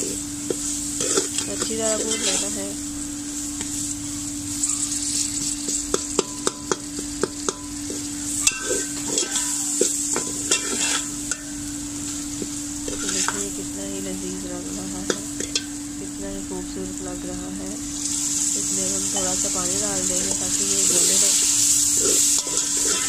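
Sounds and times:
food sizzling in oil: 0:00.0 - 0:23.0
steady low hum: 0:00.0 - 0:23.0
spatula scraping metal pot: 0:01.0 - 0:02.6, 0:08.4 - 0:11.4, 0:12.9 - 0:13.5, 0:22.0 - 0:23.0.

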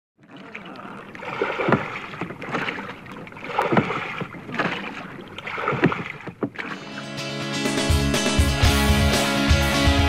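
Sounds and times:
oars splashing through water: 0:00.2 - 0:07.4
steady wash of water: 0:00.2 - 0:07.4.

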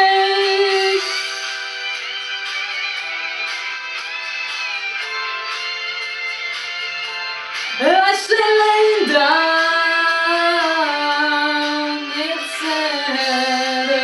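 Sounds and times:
woman singing: 0:00.0 - 0:01.3, 0:07.7 - 0:14.0
pop backing music: 0:00.0 - 0:14.0.

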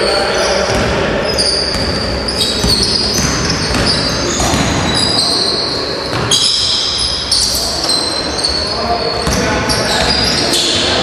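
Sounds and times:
echoing hall background noise: 0:00.0 - 0:11.0
sneakers squeaking: 0:00.0 - 0:11.0
basketball bouncing on wooden floor: 0:01.7 - 0:05.1, 0:06.1 - 0:06.4.

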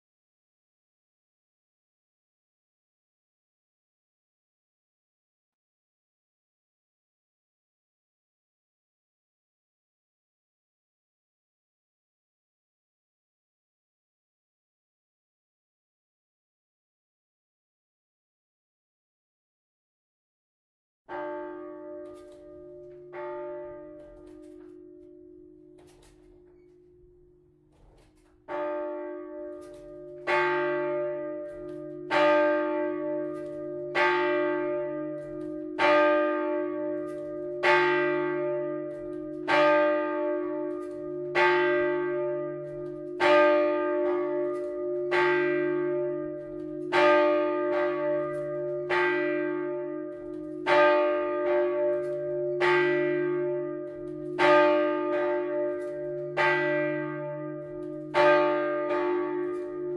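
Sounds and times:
church bell ringing: 0:21.1 - 0:59.9.

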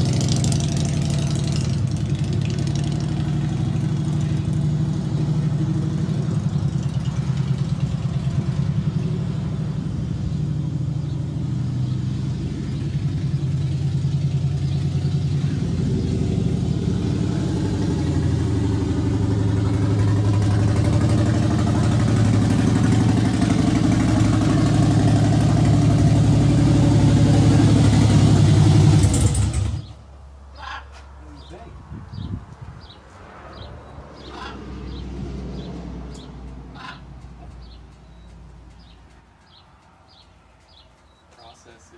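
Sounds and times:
motorcycle engine running: 0:00.0 - 0:29.9.

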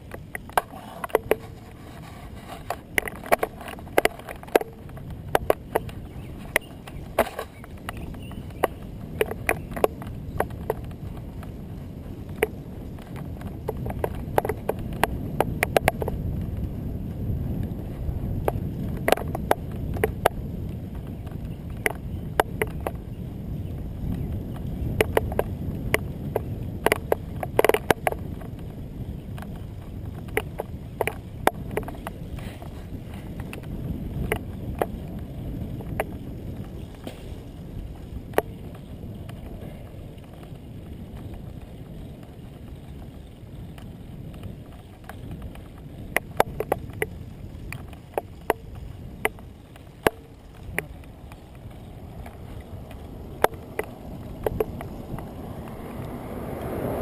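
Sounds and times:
bicycle clicking and rattling: 0:00.0 - 0:57.0
road rumble: 0:00.0 - 0:57.0
wind rumbling on microphone: 0:00.0 - 0:57.0.

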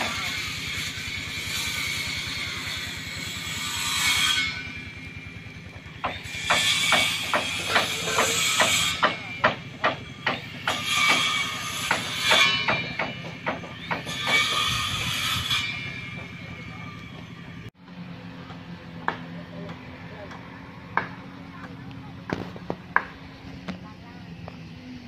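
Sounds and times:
hammer blows on timber: 0:05.8 - 0:17.6.

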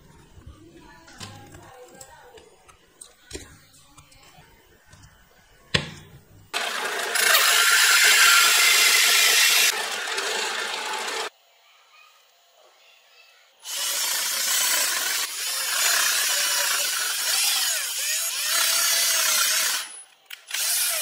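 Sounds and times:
drill press cutting wood: 0:06.6 - 0:11.3, 0:13.7 - 0:21.0.

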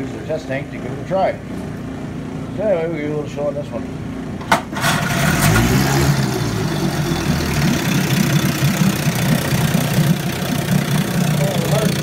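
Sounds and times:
outboard motor running: 0:04.8 - 0:12.0
water churning: 0:04.8 - 0:12.0.

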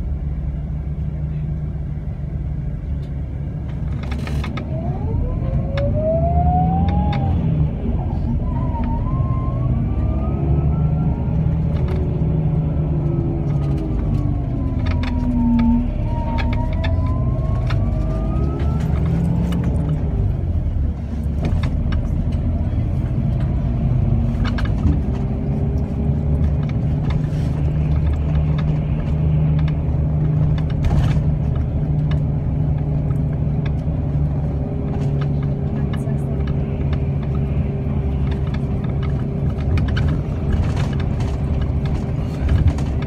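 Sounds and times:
bus engine rumble: 0:00.0 - 0:43.0
drivetrain whine: 0:00.0 - 0:43.0
rattles and clicks: 0:03.0 - 0:04.8, 0:11.2 - 0:43.0.

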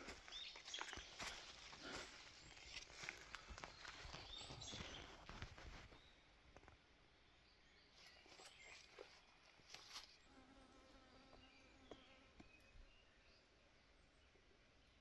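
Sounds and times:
faint insect-like buzz: 0:08.3 - 0:13.0.

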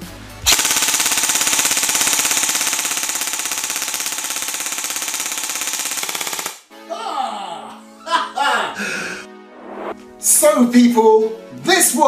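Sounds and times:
airsoft gun full-auto rattle: 0:00.5 - 0:06.6.

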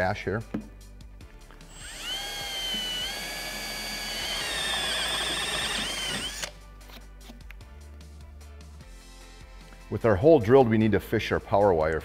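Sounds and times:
background music: 0:00.0 - 0:12.0
cordless drill whining: 0:01.7 - 0:06.6.

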